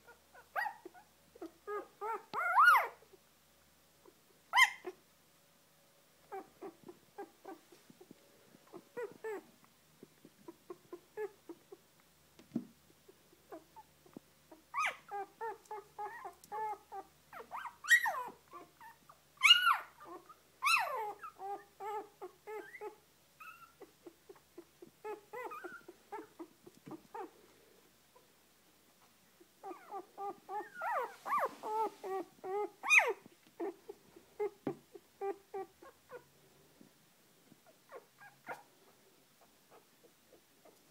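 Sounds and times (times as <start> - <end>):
puppies squeaking and whimpering: 0.0 - 3.0, 4.6 - 5.0, 8.7 - 9.5, 13.5 - 27.3, 29.6 - 36.3, 37.9 - 38.7.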